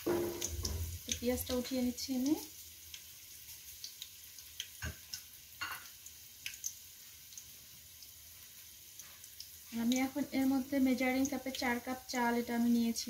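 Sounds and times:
knock on pot: 0.0s - 1.0s, 4.8s - 5.9s
hot oil crackling: 0.0s - 13.0s.

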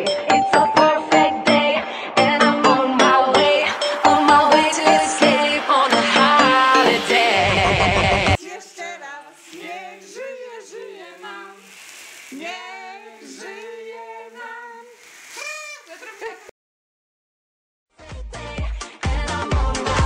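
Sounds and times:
voices singing unaccompanied: 0.0s - 16.3s, 18.4s - 20.0s
loud music: 2.2s - 8.4s.

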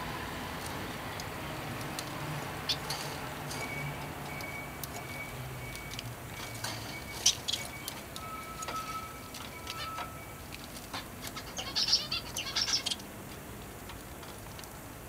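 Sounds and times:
bird clicking and tapping in cage: 0.6s - 11.5s.

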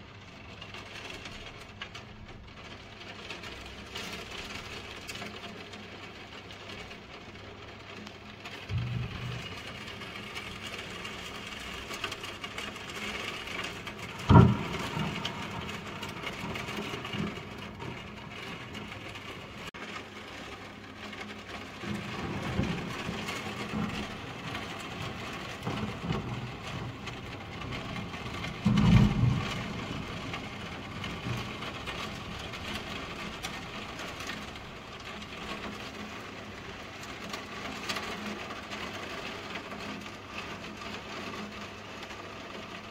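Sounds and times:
heavy rain falling: 0.0s - 42.9s
low thunder rumble: 8.5s - 19.7s, 21.0s - 36.3s
sharp thunder clap: 8.6s - 11.8s, 13.6s - 19.7s, 21.8s - 34.3s.

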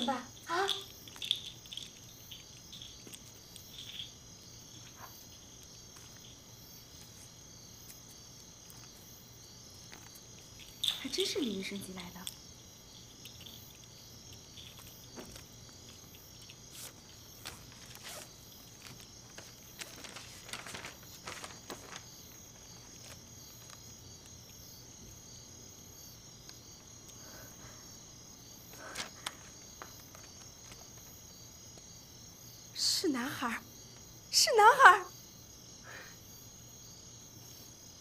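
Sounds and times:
crickets chirping: 0.0s - 38.0s
soft rustles and clicks: 4.7s - 11.3s, 13.1s - 24.4s, 28.8s - 31.9s.

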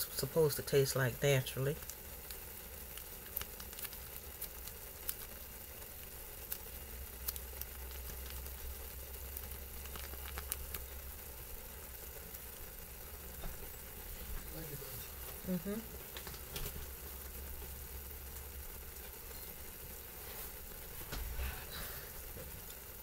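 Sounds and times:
noodles sizzling in a pan: 0.0s - 23.0s
foil packet crinkling: 1.7s - 11.6s.

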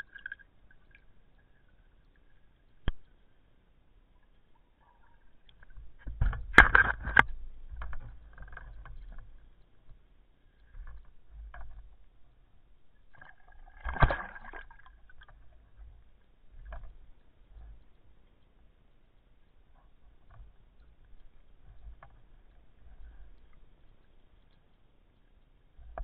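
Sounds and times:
underwater splashing and bubbling: 0.0s - 3.5s, 5.0s - 18.0s.

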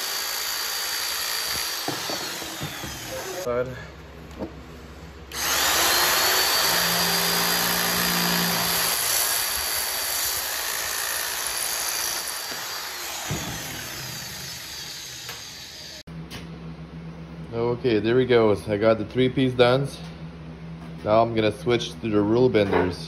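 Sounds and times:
electric metal cutter whining: 0.0s - 3.5s, 5.3s - 16.1s.

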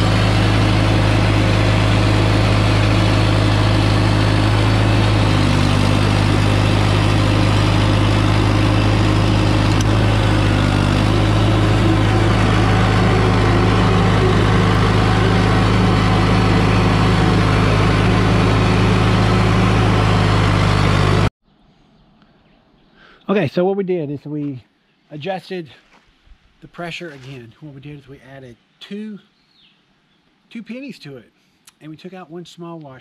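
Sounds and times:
diesel engine idling: 0.0s - 21.3s.

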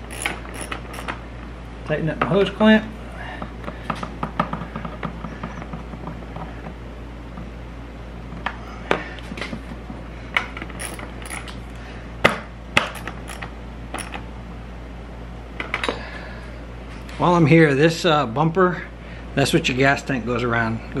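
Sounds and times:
ratchet clicking: 0.0s - 1.2s.

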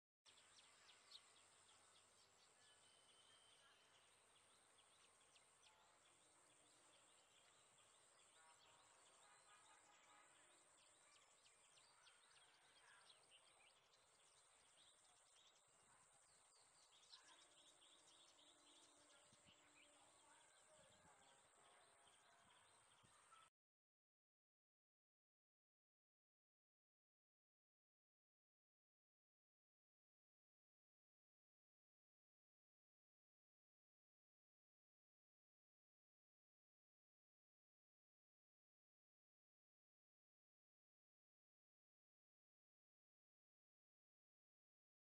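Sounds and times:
small birds chirping: 0.3s - 23.5s.

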